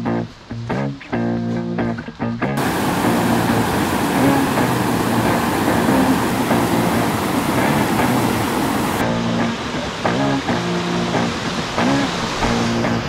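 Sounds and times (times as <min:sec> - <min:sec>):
whitewater rushing over rocks: 0:02.6 - 0:09.0.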